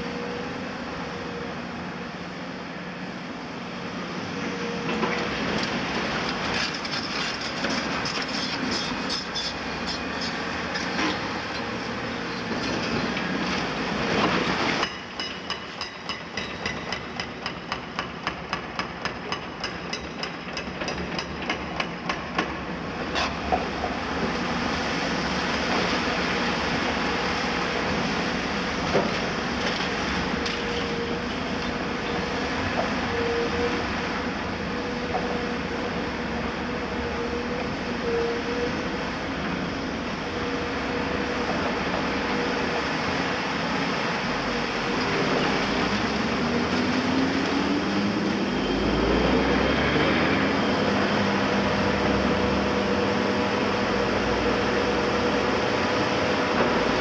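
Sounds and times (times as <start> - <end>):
steel tracks clanking: 4.8 - 24.6
diesel engines running: 21.4 - 57.0.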